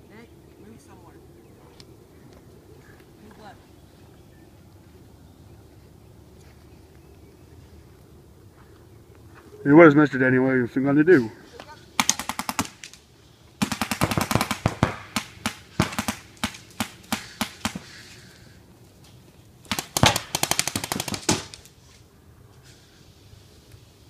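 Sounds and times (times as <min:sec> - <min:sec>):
paintball markers firing: 0:12.0 - 0:13.0, 0:13.6 - 0:18.0, 0:19.7 - 0:21.7.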